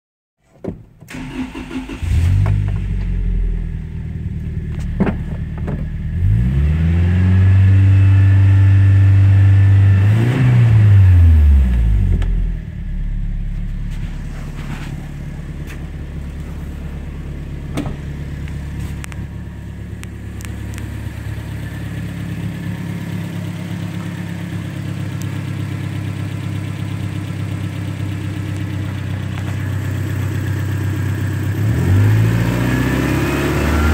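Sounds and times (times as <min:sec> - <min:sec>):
engine cranking and starting: 0:01.0 - 0:03.2
engine idling: 0:01.1 - 0:06.4, 0:11.5 - 0:31.6
engine revving: 0:01.2 - 0:04.2, 0:06.0 - 0:26.6, 0:29.7 - 0:33.9.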